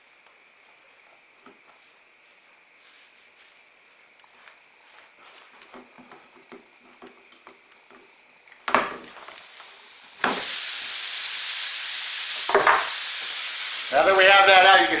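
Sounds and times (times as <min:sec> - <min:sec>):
air hissing from tyre: 0:09.0 - 0:15.0.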